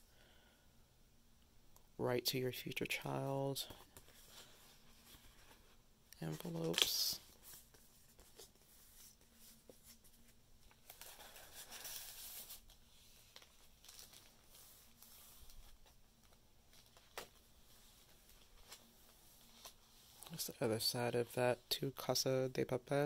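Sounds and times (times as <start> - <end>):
paper rustling and sliding: 3.8 - 20.6.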